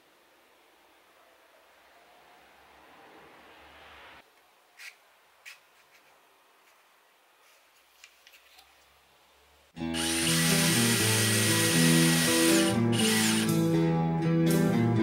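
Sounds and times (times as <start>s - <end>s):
music: 9.8s - 15.0s
cordless drill whining: 9.9s - 13.5s.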